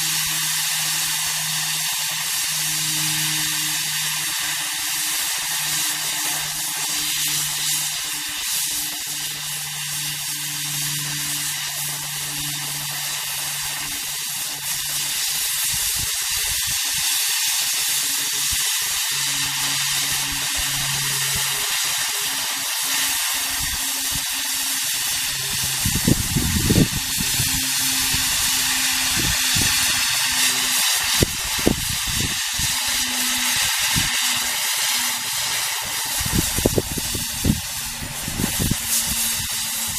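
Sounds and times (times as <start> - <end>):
cutting torch hissing: 0.0 - 39.9
low hum: 17.8 - 39.9.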